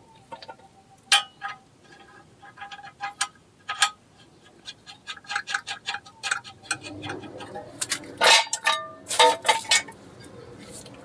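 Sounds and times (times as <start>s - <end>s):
metal tools clinking: 5.1s - 10.0s.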